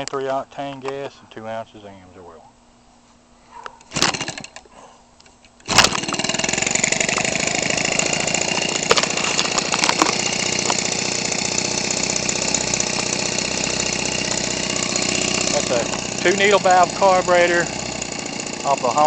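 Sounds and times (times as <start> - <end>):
starter clicks: 3.6 - 16.4
small two-stroke engine running: 3.9 - 4.6, 5.6 - 19.0.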